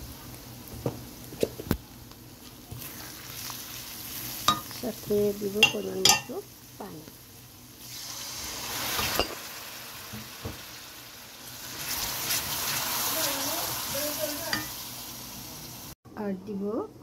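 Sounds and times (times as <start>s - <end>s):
masala sizzling in hot oil: 0.0s - 16.0s
spatula stirring: 2.4s - 6.3s, 11.7s - 13.5s.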